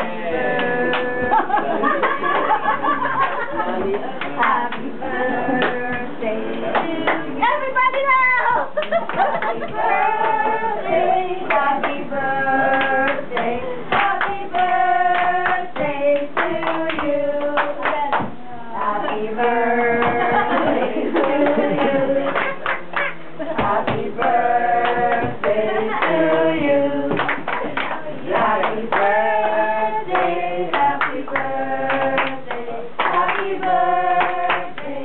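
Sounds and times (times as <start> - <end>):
group singing: 0.0 - 7.5, 8.7 - 35.0
hand claps: 27.1 - 29.1, 30.1 - 33.5, 34.2 - 34.9.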